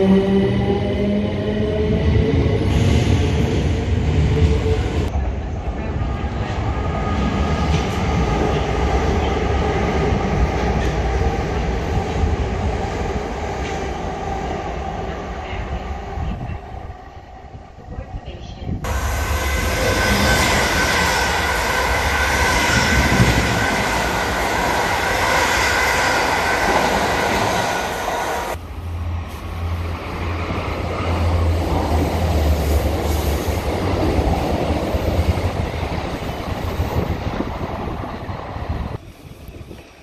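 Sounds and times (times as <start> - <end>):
low train rumble: 0.0 - 40.0
train wheels rushing on rail: 17.9 - 40.0
high wheel squeal: 18.9 - 28.6.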